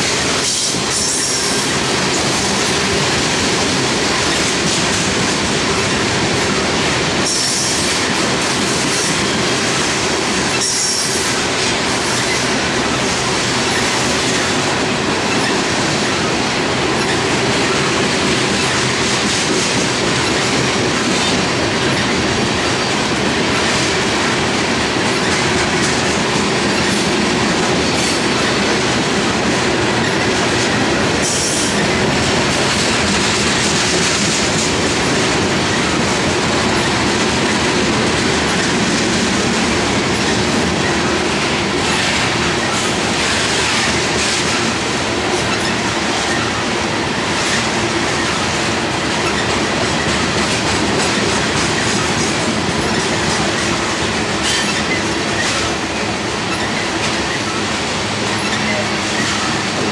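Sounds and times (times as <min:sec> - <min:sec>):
clickety-clack over rail joints: 0:00.0 - 0:59.9
train wheels rumbling on rail: 0:00.0 - 0:59.9
wheel squeals: 0:51.1 - 0:59.9.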